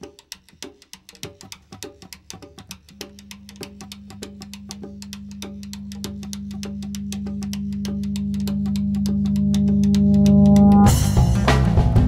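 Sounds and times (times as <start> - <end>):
light clicking percussion: 0.0 - 11.3
held low note: 3.0 - 11.3.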